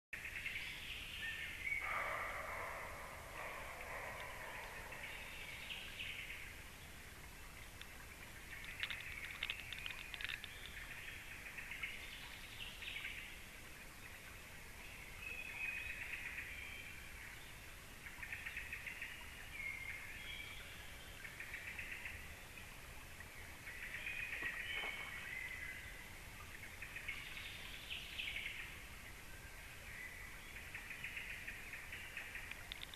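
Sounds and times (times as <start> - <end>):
faint birdsong trills: 0.2 - 32.9.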